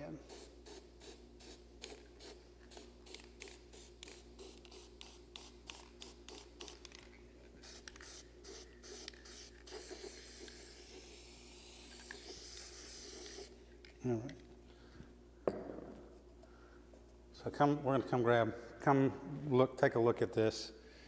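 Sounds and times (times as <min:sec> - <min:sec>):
spray paint can hissing: 0:00.3 - 0:13.6.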